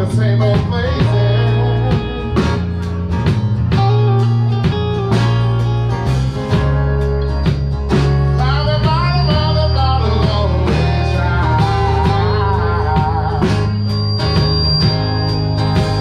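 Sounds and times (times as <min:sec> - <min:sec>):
bending lead guitar line: 0:00.0 - 0:16.0
live rock band playing: 0:00.0 - 0:16.0.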